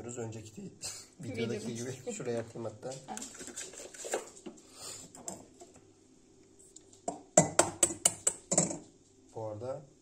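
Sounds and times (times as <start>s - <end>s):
egg knocking on metal bowl: 7.1s - 8.9s.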